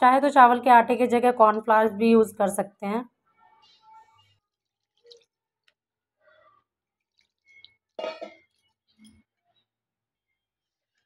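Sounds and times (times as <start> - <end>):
wet batter squelches: 3.3 - 9.6.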